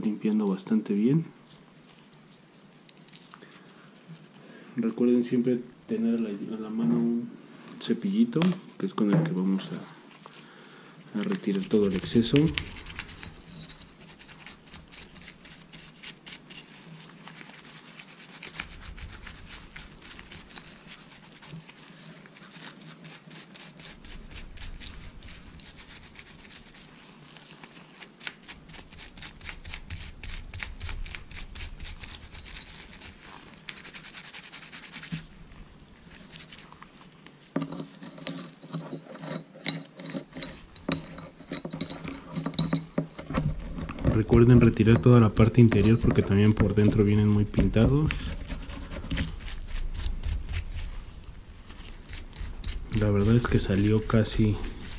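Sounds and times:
stiff brush scrubbing metal: 11.2s - 36.8s, 37.8s - 54.9s.

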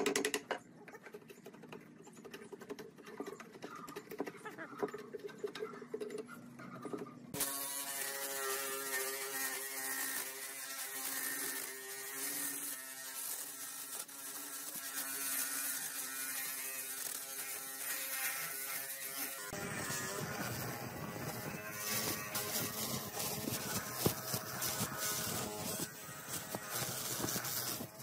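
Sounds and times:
drill sanding wood: 7.4s - 28.0s.

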